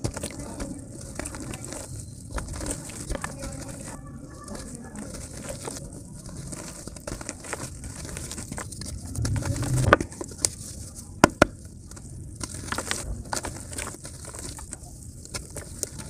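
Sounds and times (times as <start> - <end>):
dry clay crumbling in hands: 0.0 - 16.0
muffled rumble: 7.8 - 11.8.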